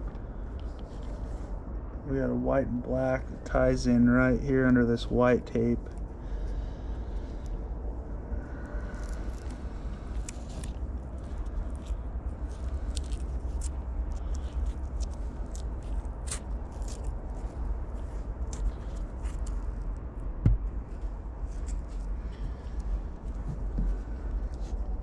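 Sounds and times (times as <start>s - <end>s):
low steady hum: 0.0s - 25.0s
old tape crackling when peeled: 8.6s - 20.3s.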